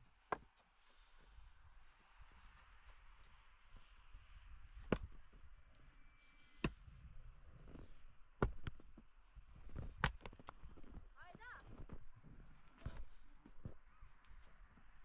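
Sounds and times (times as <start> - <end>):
tool knocking on frozen ground: 8.4 - 8.9.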